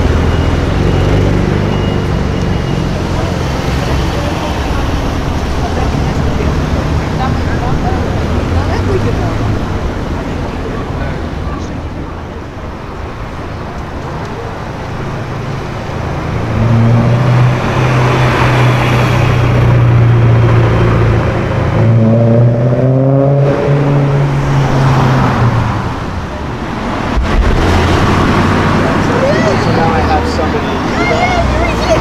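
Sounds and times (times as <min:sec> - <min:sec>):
another car speeding up: 0:16.2 - 0:32.0.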